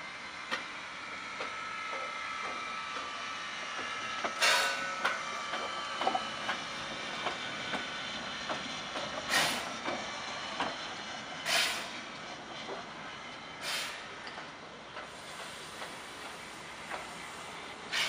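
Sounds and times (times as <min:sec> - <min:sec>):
steam hissing: 0:04.0 - 0:08.2, 0:09.0 - 0:12.1, 0:12.9 - 0:14.2, 0:15.0 - 0:18.0.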